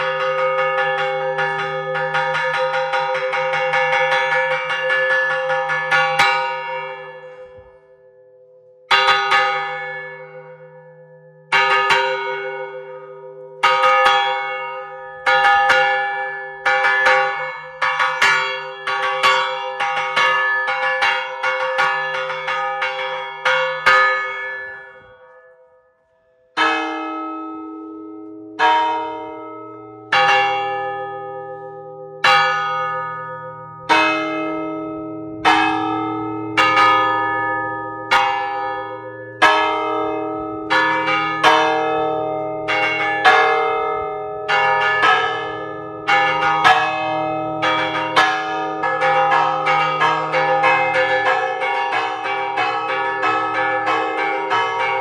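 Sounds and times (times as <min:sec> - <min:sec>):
deeper bell ringing: 0:00.0 - 0:25.5
church bell ringing: 0:00.0 - 0:55.0.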